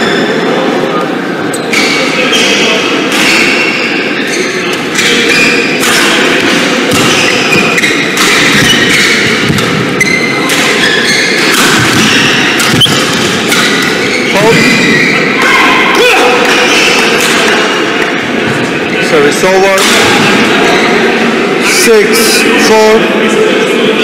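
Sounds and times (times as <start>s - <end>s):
echoing hall noise: 0.0s - 24.0s
rackets hitting shuttlecock: 4.7s - 14.8s, 16.4s - 18.1s
shoes squeaking on court: 7.1s - 15.3s.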